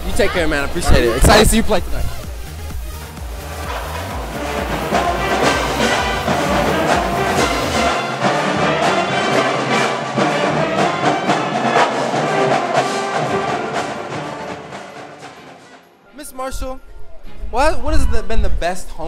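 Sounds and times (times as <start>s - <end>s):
pep band playing: 1.1s - 16.0s.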